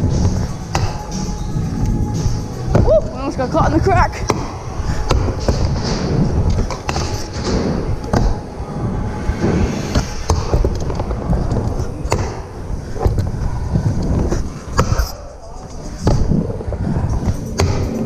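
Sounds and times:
scooter wheels rumbling on ramp: 4.1s - 9.6s, 15.7s - 18.0s.

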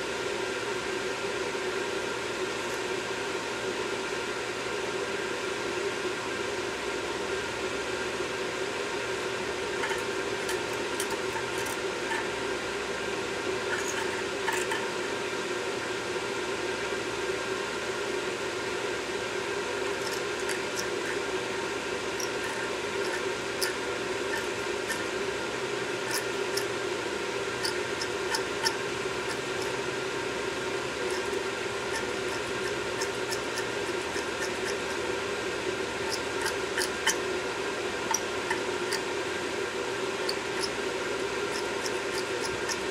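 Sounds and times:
steady hum and hiss: 0.0s - 42.9s
brush and metal tool scraping: 9.6s - 12.4s, 13.6s - 14.9s, 19.9s - 39.3s, 40.1s - 42.9s.

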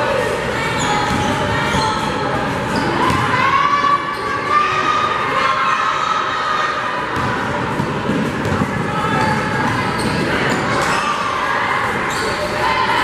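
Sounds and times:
sneakers squeaking: 0.1s - 4.9s, 7.0s - 13.0s
ball bouncing on hardwood court: 3.0s - 3.3s, 7.1s - 11.0s.

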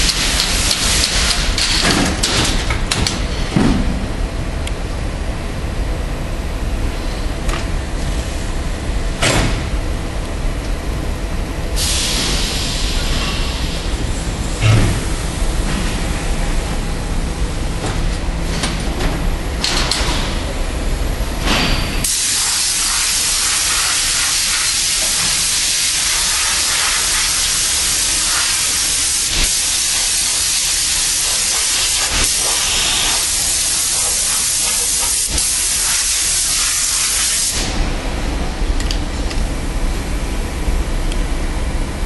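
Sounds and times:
low rumble of factory machinery: 0.0s - 42.0s
compressed air hissing: 11.8s - 16.6s, 22.0s - 37.8s.

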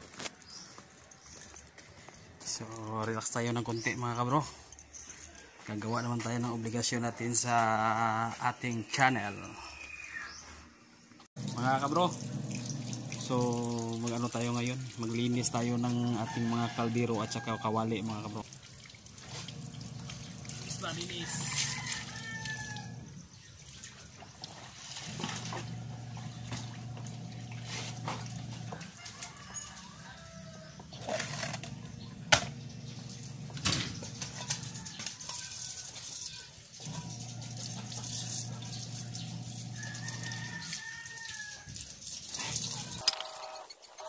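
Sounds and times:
water splashing from hose: 11.4s - 43.8s.

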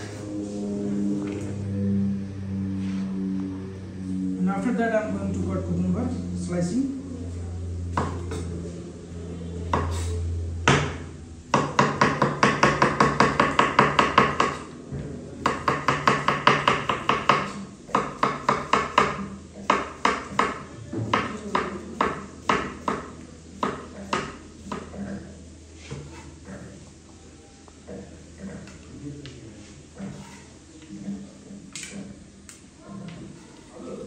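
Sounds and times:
knife chopping on wooden board: 8.0s - 8.4s, 10.7s - 14.6s, 15.4s - 24.9s.

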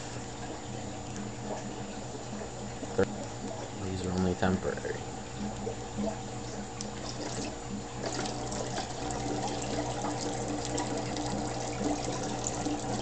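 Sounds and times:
aquarium water trickling and splashing: 0.0s - 13.0s
steady low hum: 0.0s - 13.0s.

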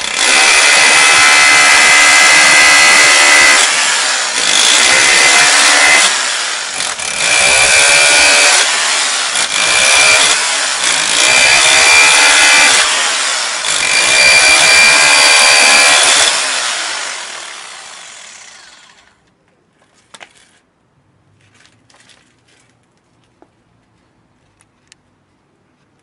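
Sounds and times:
rotary hammer drilling into concrete: 0.0s - 19.1s.

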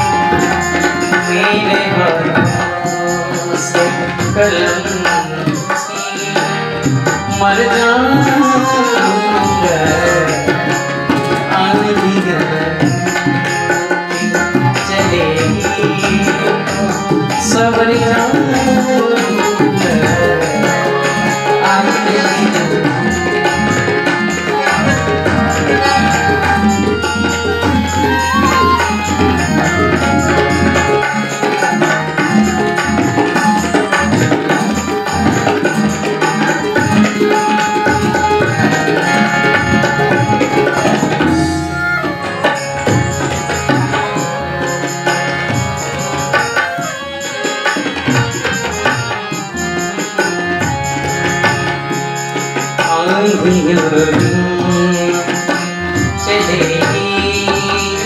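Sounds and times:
drum rhythm: 0.0s - 58.0s
harmonium: 0.0s - 58.0s
bamboo flute: 25.7s - 30.0s.

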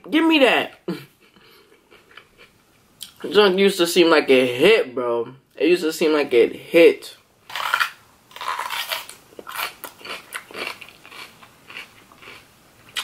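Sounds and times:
person crunching bell pepper: 7.5s - 13.0s.

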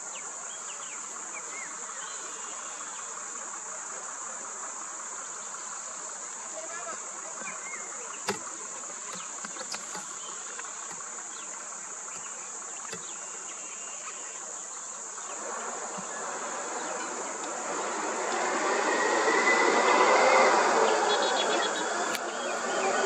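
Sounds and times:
insects droning: 0.0s - 23.0s
road vehicle: 15.4s - 23.0s.

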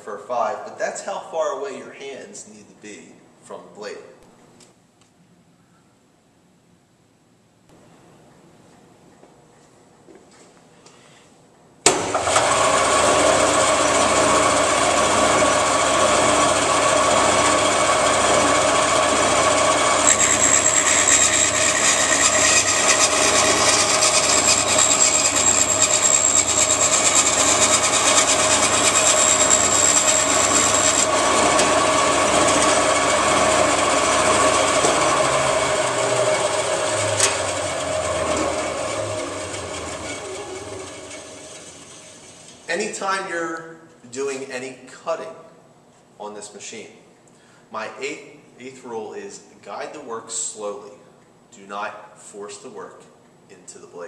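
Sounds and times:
saw blade cutting wood: 11.9s - 42.6s
band saw motor running: 12.0s - 42.9s.

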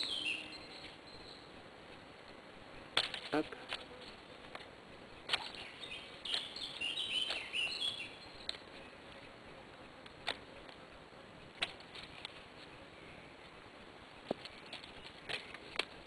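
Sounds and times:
bird chirping: 0.0s - 1.6s, 5.1s - 9.1s
twigs snapping: 3.0s - 5.7s, 7.1s - 7.6s, 14.3s - 16.0s.

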